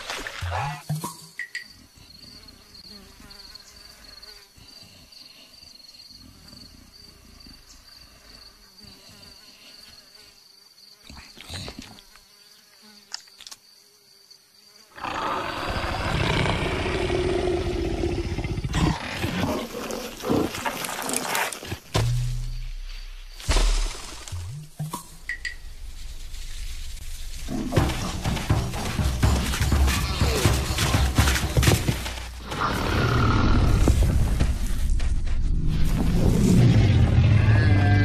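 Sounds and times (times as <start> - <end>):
wildlife ambience: 0.0 - 38.0
faint high insect buzz: 0.9 - 16.3
big cat growling: 15.0 - 21.7, 32.4 - 34.2.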